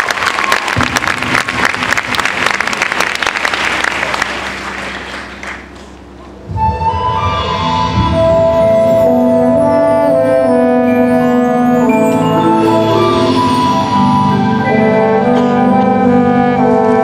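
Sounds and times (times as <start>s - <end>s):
marching band brass: 0.0s - 5.7s, 6.5s - 17.0s
audience applause: 0.0s - 5.9s.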